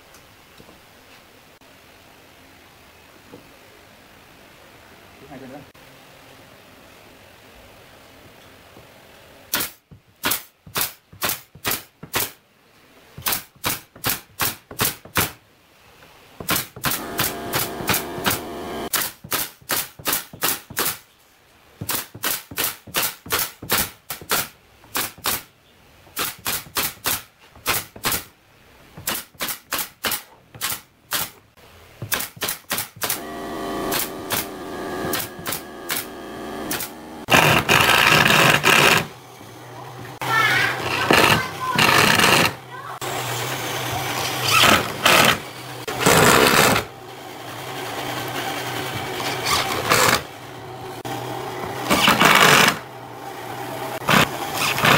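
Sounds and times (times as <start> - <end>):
pneumatic nail gun firing: 9.5 - 12.4, 13.2 - 15.4, 16.4 - 21.0, 21.9 - 25.5, 26.2 - 28.3, 29.0 - 31.4, 32.0 - 39.1, 40.8 - 42.6, 43.9 - 46.9, 48.1 - 50.3, 51.7 - 52.9, 54.0 - 54.9
power drill whirring: 33.1 - 50.4, 51.5 - 52.9, 54.0 - 54.9.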